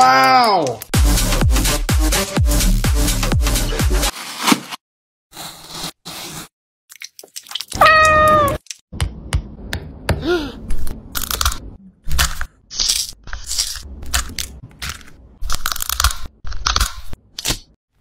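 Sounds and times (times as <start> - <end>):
cat meowing: 7.8 - 8.6
eggshell cracking and crunching: 11.1 - 17.7.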